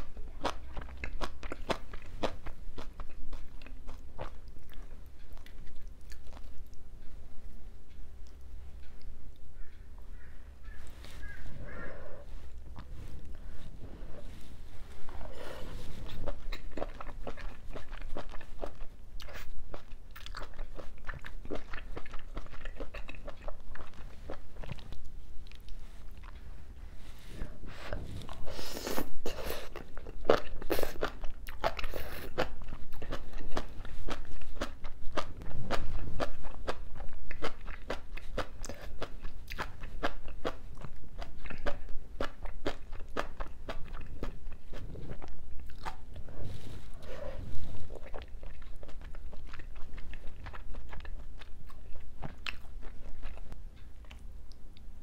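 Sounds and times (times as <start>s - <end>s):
crunchy chewing: 0.0s - 54.9s.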